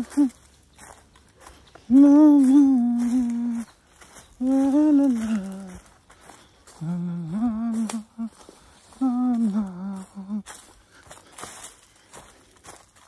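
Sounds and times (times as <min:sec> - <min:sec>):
man humming a tune: 0:00.0 - 0:00.4, 0:01.9 - 0:03.8, 0:04.4 - 0:06.0, 0:06.7 - 0:10.7.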